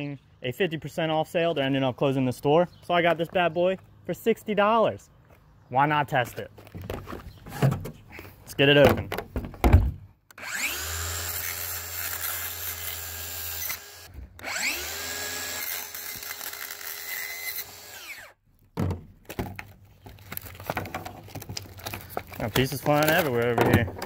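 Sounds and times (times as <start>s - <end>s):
circular saw cutting plastic: 10.3s - 18.4s
handling knocks: 20.6s - 24.0s.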